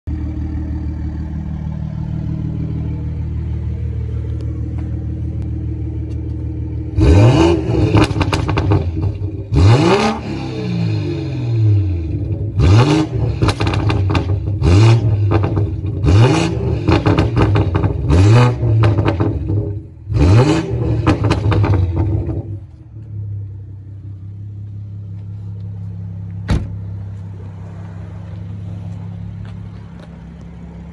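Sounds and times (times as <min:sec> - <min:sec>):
car engine idling: 0:00.1 - 0:30.9
car engine revving: 0:00.1 - 0:30.9
exhaust crackles and pops: 0:07.0 - 0:10.1, 0:12.1 - 0:19.9, 0:20.8 - 0:23.2.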